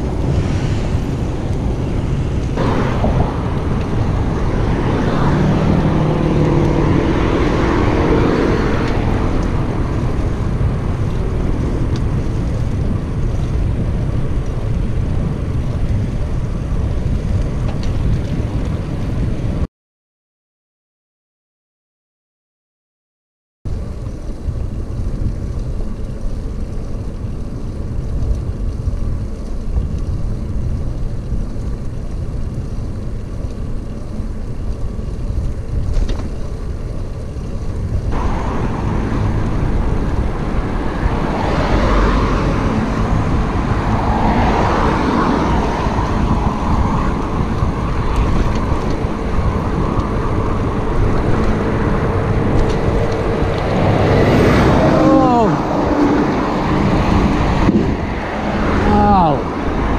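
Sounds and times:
road traffic passing: 0:00.0 - 0:19.6, 0:31.7 - 0:59.9
wind buffeting microphone: 0:00.0 - 0:19.7, 0:23.8 - 0:59.9.

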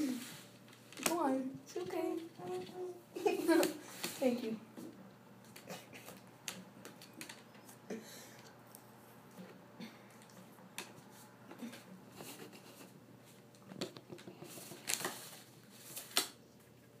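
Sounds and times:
parrot feet rustling and tapping paper: 0:10.2 - 0:16.4.

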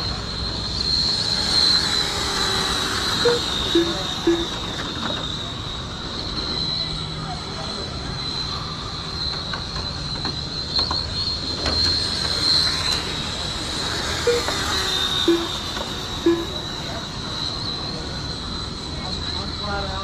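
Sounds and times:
rc race cars whining: 0:00.0 - 0:20.0
short beeps: 0:03.2 - 0:04.7, 0:14.2 - 0:16.8.

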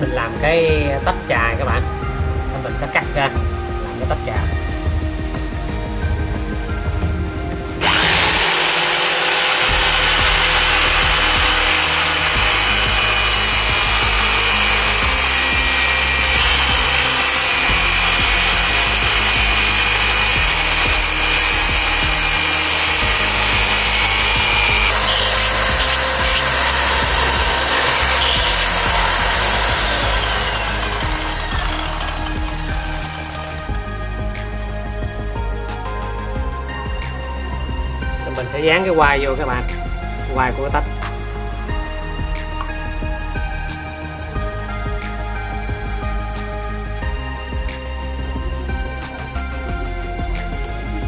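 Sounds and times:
background music: 0:00.0 - 0:51.0
electric drill whining: 0:04.3 - 0:51.0
disc grinding shell: 0:07.8 - 0:33.6.

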